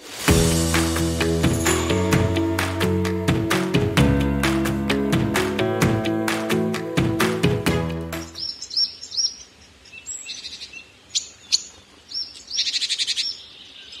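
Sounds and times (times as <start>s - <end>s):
background music: 0.0s - 8.4s
bird chirping and trilling: 8.2s - 14.0s.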